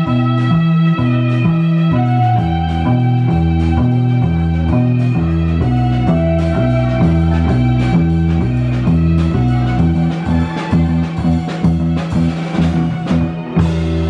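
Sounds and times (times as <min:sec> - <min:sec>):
live rock band playing: 0:00.0 - 0:14.0.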